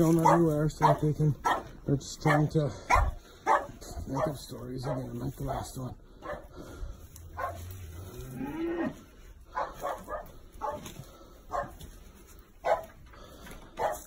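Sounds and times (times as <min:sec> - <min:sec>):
dogs barking: 0:00.0 - 0:05.4, 0:06.1 - 0:07.8, 0:09.4 - 0:11.9, 0:12.6 - 0:13.0, 0:13.7 - 0:14.0.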